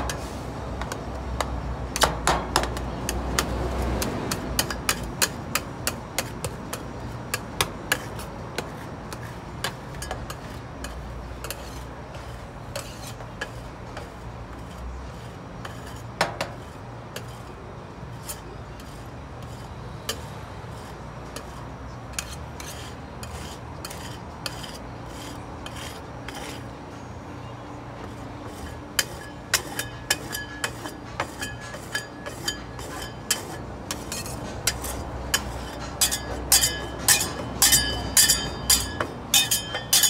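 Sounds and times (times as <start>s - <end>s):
metal spatulas scraping steel plate: 9.1s - 17.6s, 18.2s - 26.7s, 28.1s - 40.0s.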